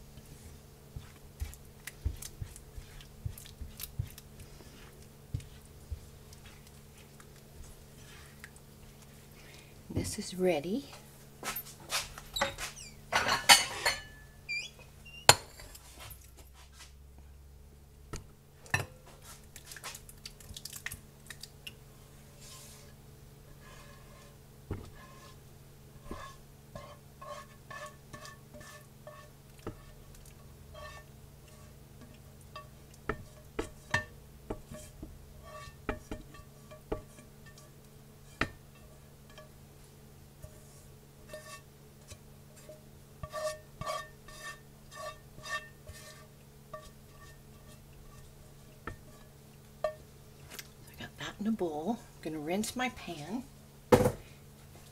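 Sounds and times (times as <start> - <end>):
low steady hum: 0.0 - 54.9
spatula scraping frying pan: 0.3 - 9.3, 11.9 - 16.7, 22.2 - 50.1.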